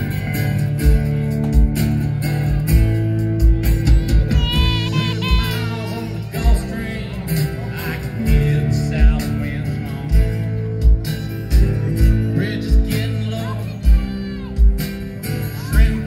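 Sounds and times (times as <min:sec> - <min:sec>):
acoustic guitar: 0:00.0 - 0:16.0
bass guitar: 0:00.0 - 0:16.0
electric guitar: 0:00.0 - 0:16.0
kick drum beat: 0:02.7 - 0:05.6.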